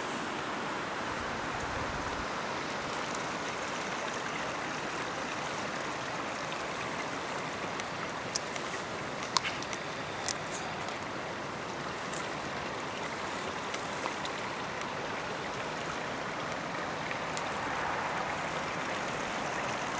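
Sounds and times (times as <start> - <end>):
flowing water rushing: 0.0 - 19.9
faint clicks: 7.7 - 11.1.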